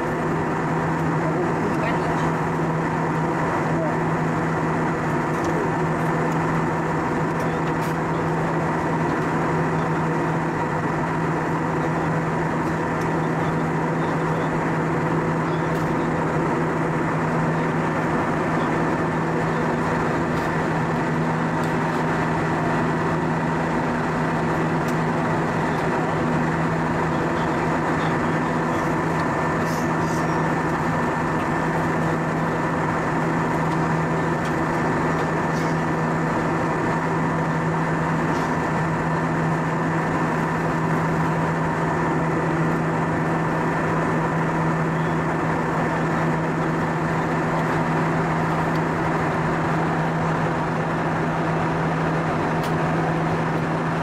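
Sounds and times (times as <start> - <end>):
airplane cabin noise in flight: 0.0 - 54.0.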